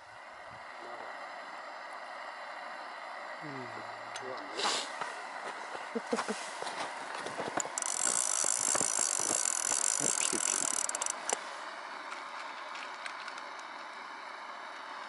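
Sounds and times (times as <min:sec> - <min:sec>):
light clicks and rattles: 0:07.2 - 0:11.4, 0:12.0 - 0:13.8
fishing reel whirring: 0:07.5 - 0:11.5.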